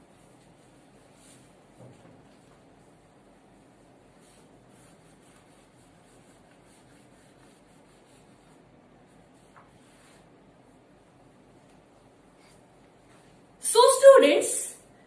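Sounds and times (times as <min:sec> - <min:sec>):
chalk scratching on blackboard: 0:00.0 - 0:10.3.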